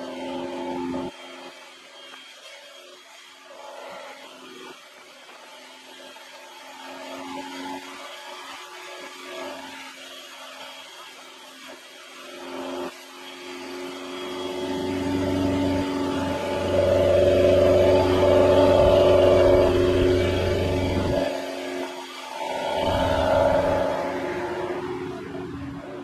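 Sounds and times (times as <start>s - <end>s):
scooter engine whine: 0.0s - 1.9s, 13.8s - 26.0s.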